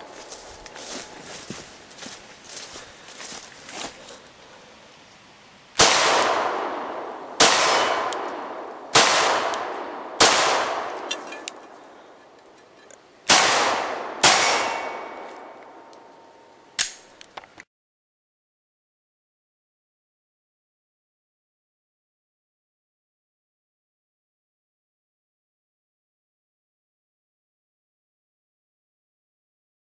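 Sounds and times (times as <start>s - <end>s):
pistol shots with echo: 5.8s - 11.2s, 13.3s - 15.6s
sharp crack: 5.8s - 11.6s, 13.3s - 16.0s, 16.8s - 17.4s
ringing steel targets: 7.4s - 15.6s.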